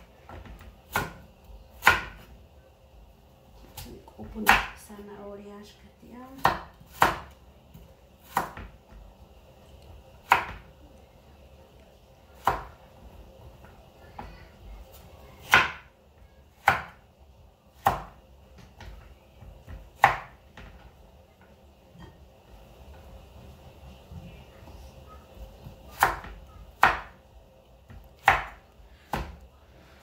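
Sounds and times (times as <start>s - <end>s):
knife chopping on wooden board: 0.3s - 1.2s, 1.8s - 2.3s, 4.4s - 4.8s, 6.4s - 7.4s, 8.2s - 8.8s, 10.2s - 10.7s, 16.6s - 17.0s, 17.8s - 19.0s, 19.7s - 20.8s, 25.9s - 27.2s, 27.9s - 29.4s.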